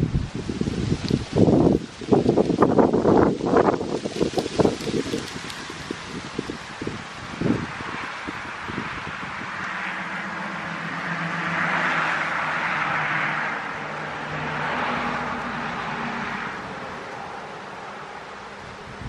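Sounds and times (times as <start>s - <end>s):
wind rustling leaves: 0.0s - 19.0s
vehicle passing: 4.1s - 19.0s.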